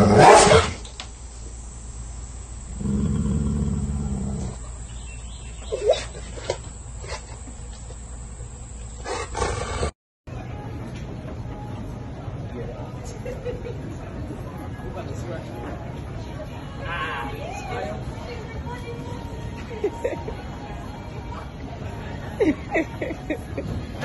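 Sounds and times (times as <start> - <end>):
dog barking: 0.2 - 0.7
dog growling: 2.8 - 4.6.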